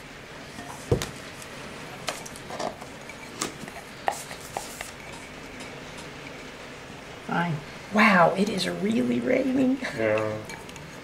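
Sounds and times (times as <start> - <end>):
utensils scraping ceramic bowls: 2.2 - 6.5.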